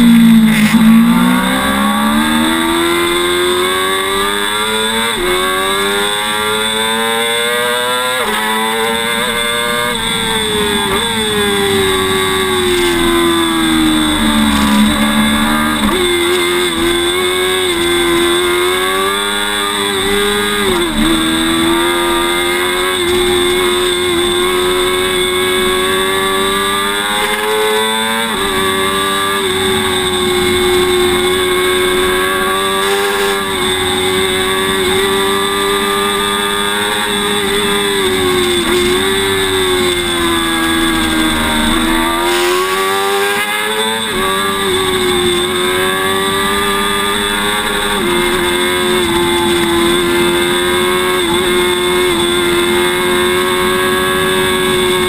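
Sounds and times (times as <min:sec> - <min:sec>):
motorcycle engine at high revs: 0:00.0 - 0:55.0.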